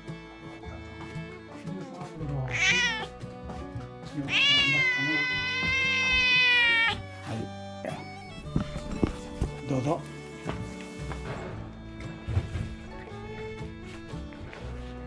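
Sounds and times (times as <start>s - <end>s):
background music: 0.0s - 15.0s
cat meowing: 2.4s - 3.2s, 4.3s - 7.2s.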